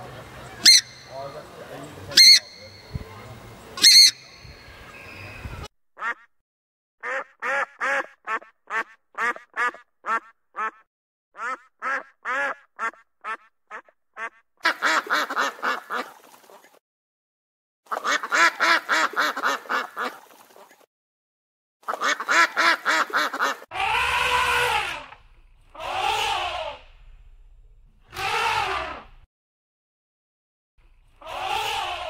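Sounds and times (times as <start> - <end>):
ducks quacking: 0.0 - 4.4, 7.0 - 16.7, 17.9 - 20.3, 21.8 - 27.0, 31.2 - 32.0
low rumble: 26.4 - 28.1.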